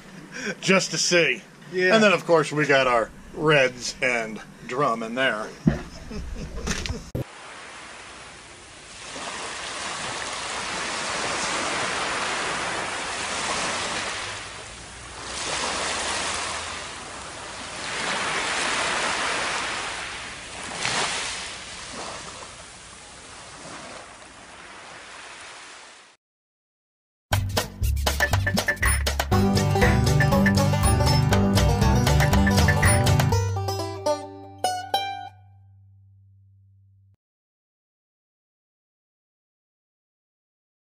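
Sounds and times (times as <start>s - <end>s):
surf washing up a beach: 7.2s - 26.1s.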